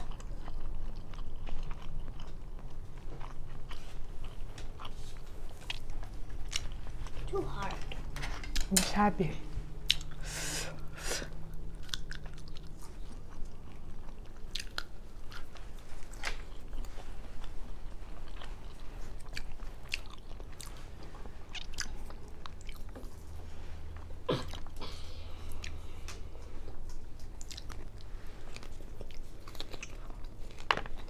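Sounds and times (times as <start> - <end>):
person chewing: 0.0 - 8.7, 9.7 - 31.0.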